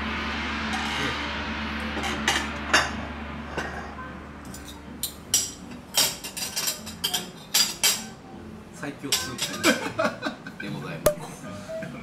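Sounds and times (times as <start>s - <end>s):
low hum sound effect: 0.0s - 5.8s.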